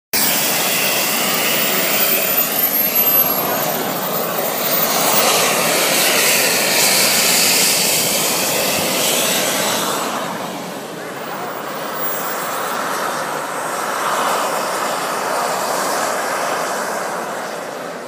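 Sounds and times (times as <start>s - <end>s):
thin high whine: 0.2s - 10.3s
model jet turbine rushing: 0.2s - 18.0s.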